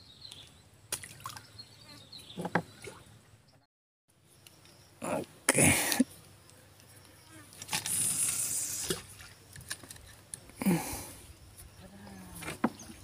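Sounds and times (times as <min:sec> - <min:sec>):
fishing tackle clicks and knocks: 0:09.5 - 0:10.2.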